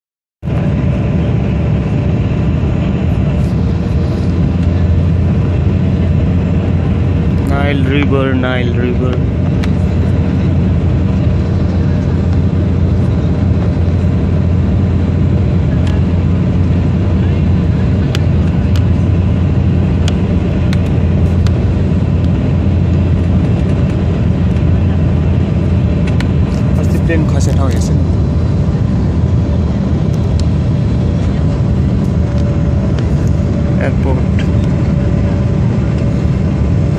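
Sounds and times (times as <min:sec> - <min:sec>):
aircraft engine drone in cabin: 0:00.4 - 0:36.9.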